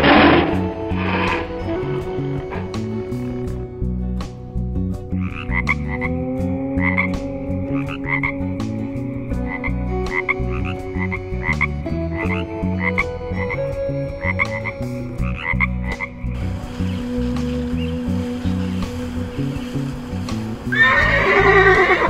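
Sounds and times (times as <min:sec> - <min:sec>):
frog croaking: 0:00.0 - 0:03.4, 0:05.1 - 0:18.7
steady low background: 0:00.0 - 0:20.8.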